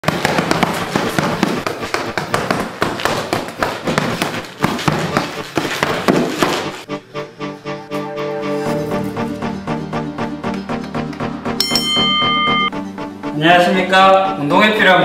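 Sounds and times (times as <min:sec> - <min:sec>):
fists punching a heavy bag: 0:00.0 - 0:06.8.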